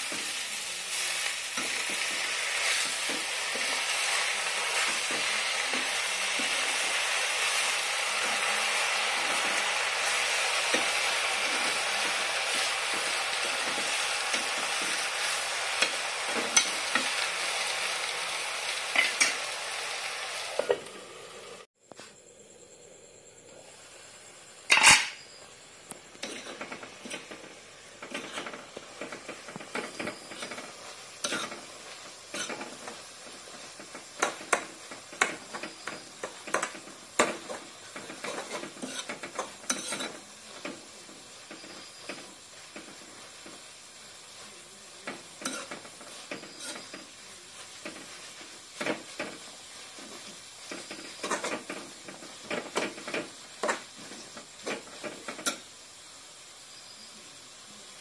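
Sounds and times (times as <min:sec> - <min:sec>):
food sizzling in a pan: 0:00.0 - 0:58.0
metal ladle scraping a pan: 0:24.7 - 0:25.2, 0:26.2 - 0:33.0, 0:37.5 - 0:40.3
metal lid clank: 0:24.7 - 0:25.2.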